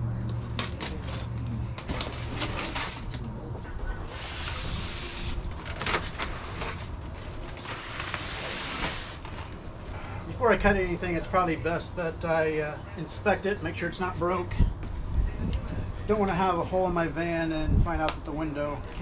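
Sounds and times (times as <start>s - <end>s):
cardboard rustling: 0.4s - 3.4s, 4.0s - 9.6s.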